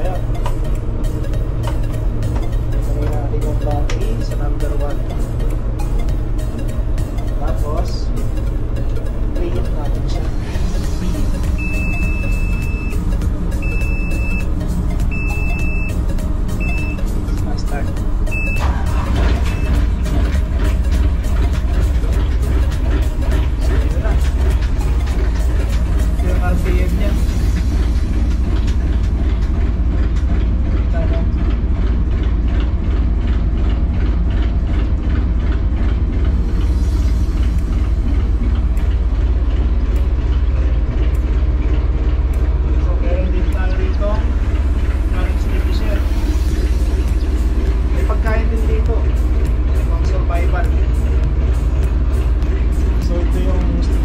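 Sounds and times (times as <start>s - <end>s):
high-pitched beeps: 0.0s - 21.0s
diesel engine low rumble: 0.0s - 54.0s.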